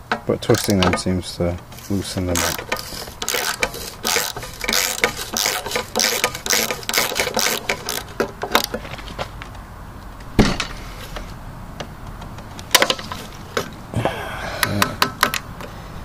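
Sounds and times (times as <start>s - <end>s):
socket ratchet clicking: 0.5s - 1.0s, 2.3s - 8.8s.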